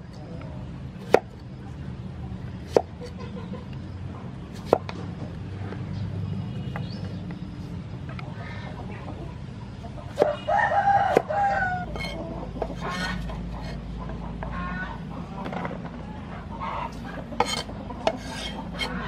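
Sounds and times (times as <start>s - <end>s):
cleaver chopping on wooden board: 1.0s - 1.3s, 2.7s - 2.9s, 4.6s - 4.9s, 11.1s - 11.3s, 17.4s - 18.9s
chicken calls: 8.2s - 19.0s
rooster crowing: 10.2s - 13.2s.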